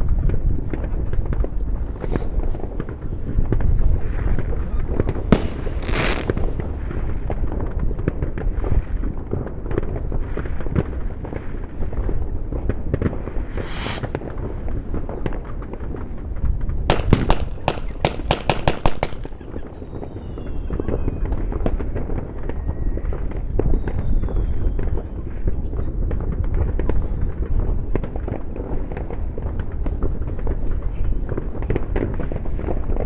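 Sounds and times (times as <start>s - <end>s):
fireworks crackling: 0.0s - 23.7s, 24.8s - 33.0s
brief hiss: 2.0s - 2.5s, 13.5s - 14.5s
faint falling whistles: 19.7s - 21.2s, 23.6s - 25.1s.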